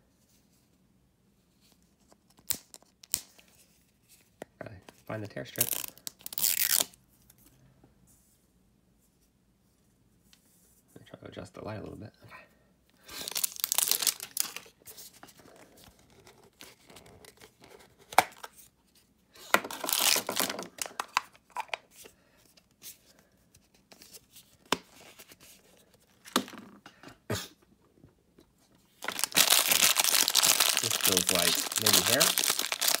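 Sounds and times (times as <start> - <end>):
plastic wrapping tearing and crinkling: 5.6 - 7.0, 13.1 - 14.7, 19.7 - 21.2, 29.0 - 33.0.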